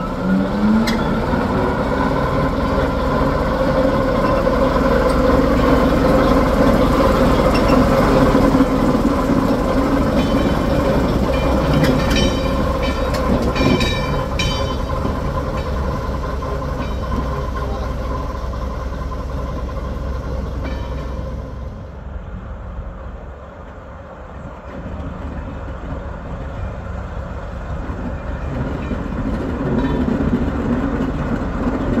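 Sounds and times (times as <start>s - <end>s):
wheels clicking and squealing: 0.0s - 21.7s
train engine running: 0.0s - 32.0s.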